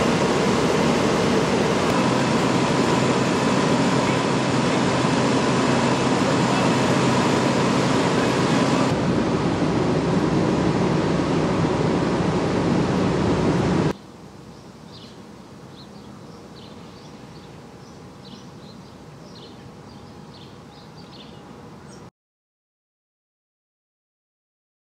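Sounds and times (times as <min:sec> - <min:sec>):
loud rushing noise with hum: 0:00.0 - 0:14.0
small birds chirping: 0:14.0 - 0:22.1.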